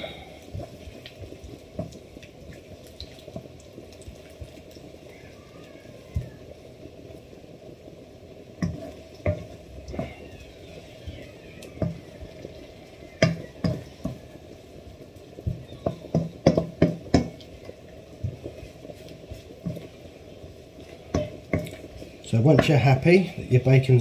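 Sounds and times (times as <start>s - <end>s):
bacon sizzling in a pan: 0.0s - 24.0s
wooden spoon knocking on pan: 1.7s - 2.0s, 8.6s - 10.2s, 11.2s - 12.4s, 13.1s - 14.4s, 15.4s - 17.6s, 18.2s - 20.0s, 20.8s - 23.0s.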